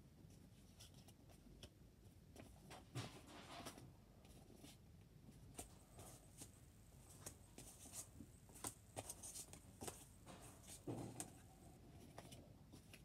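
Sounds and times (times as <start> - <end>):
photo cards rustling and clicking: 5.6 - 13.0.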